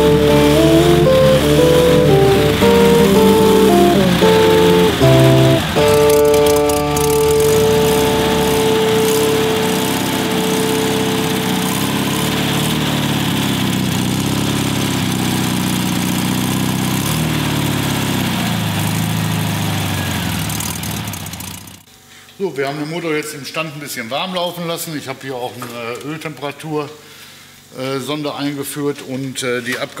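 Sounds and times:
held music note: 0.0 - 13.2
air-cooled engine idling: 0.0 - 21.8.

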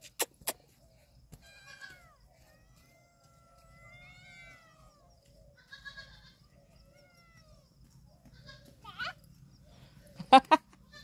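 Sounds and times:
goat kids bleating faintly: 5.6 - 6.4.

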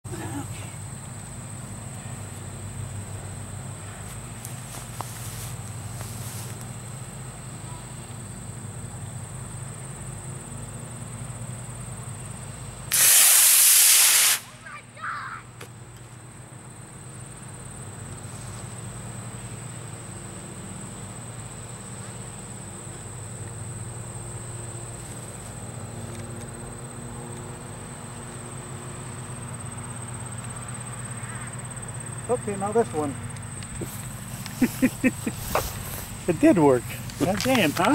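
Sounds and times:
rocket motor rushing hiss: 12.9 - 14.6.

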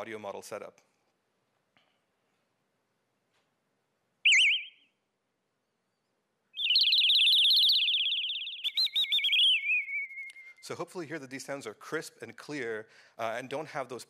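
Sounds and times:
synthesized bird chirps and trill: 4.3 - 5.0, 6.6 - 10.6.

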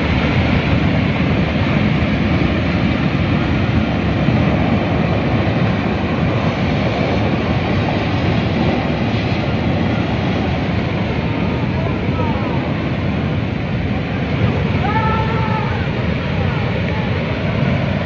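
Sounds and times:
torrent of water rushing: 0.0 - 18.0.

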